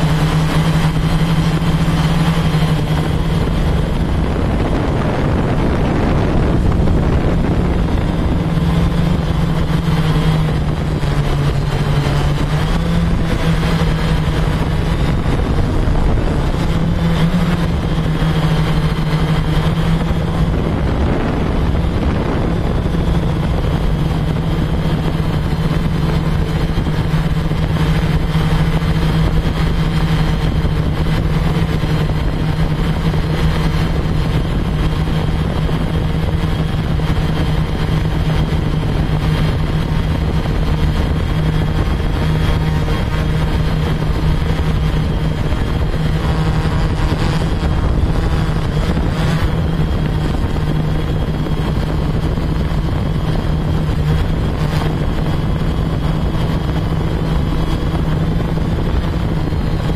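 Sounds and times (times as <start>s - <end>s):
drone propellers humming: 0.0s - 59.9s.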